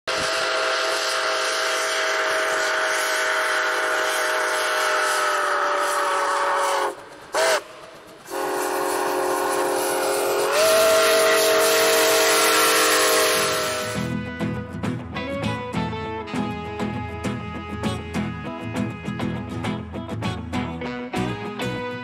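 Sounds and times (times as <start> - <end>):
steam locomotive chime whistle: 0.1 - 14.2.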